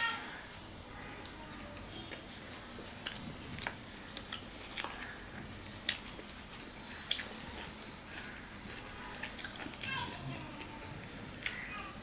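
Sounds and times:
wet chewing and mouth clicks: 0:03.0 - 0:10.7.

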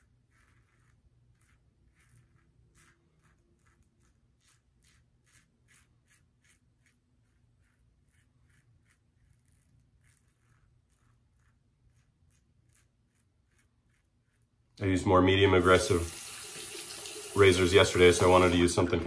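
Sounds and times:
razor scraping stubble: 0:00.0 - 0:14.8, 0:15.5 - 0:19.0.

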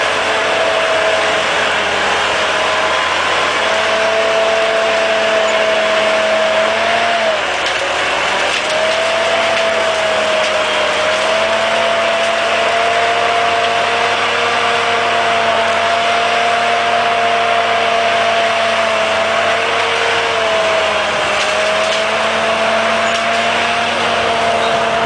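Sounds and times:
crawler tractor running: 0:00.0 - 0:25.0.

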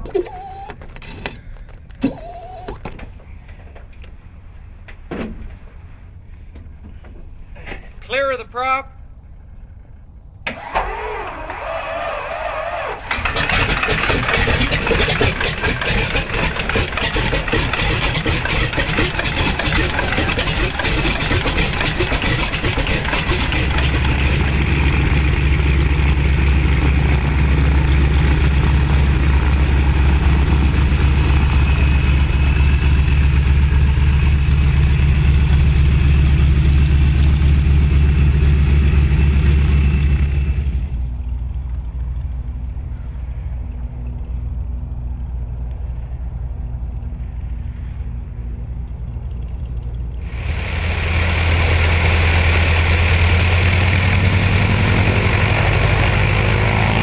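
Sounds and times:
radial engine starting and running: 0:00.0 - 0:01.4, 0:02.0 - 0:02.8, 0:10.4 - 0:41.2, 0:49.0 - 0:57.0.

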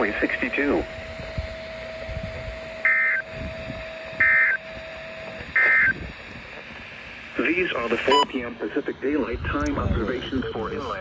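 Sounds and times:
digital data tone bursts: 0:02.8 - 0:03.3, 0:04.2 - 0:04.7, 0:05.5 - 0:06.1, 0:07.4 - 0:09.2.

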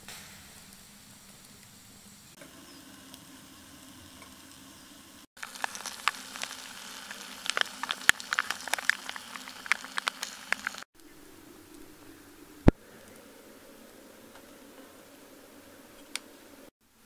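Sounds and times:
food sizzling in a pan: 0:02.4 - 0:10.9
sharp pops and crackles: 0:05.3 - 0:11.1.

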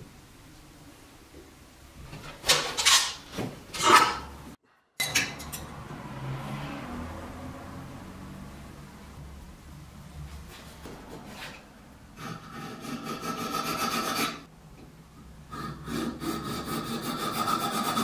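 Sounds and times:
metal tools clinking and scraping: 0:02.5 - 0:04.3, 0:05.0 - 0:05.8.

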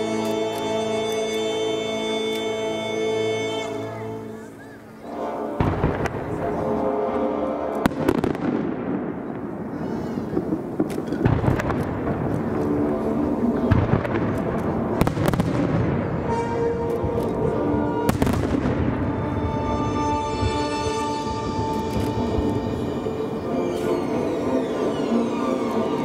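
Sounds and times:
music playing: 0:00.0 - 0:08.5, 0:16.2 - 0:26.0.

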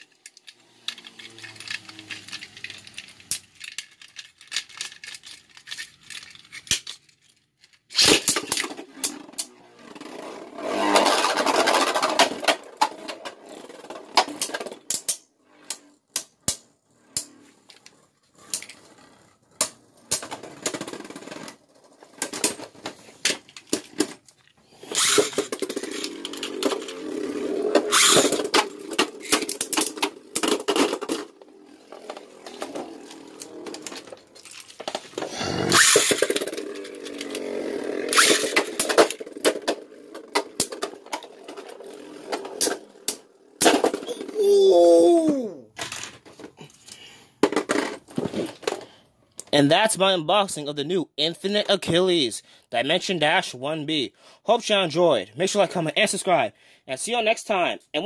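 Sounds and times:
spinning tops whirring and rattling: 0:00.0 - 0:07.0, 0:07.8 - 0:46.2
spinning top launch burst: 0:24.9 - 0:29.5, 0:35.6 - 0:38.9.

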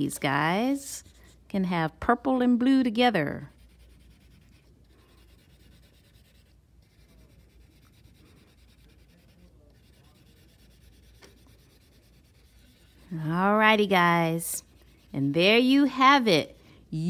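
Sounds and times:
crayon scratching on paper: 0:03.2 - 0:16.6.

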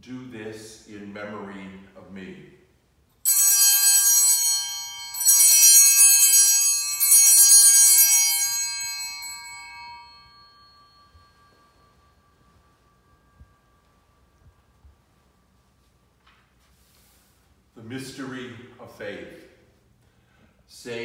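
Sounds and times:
altar bells ringing: 0:03.2 - 0:15.3.

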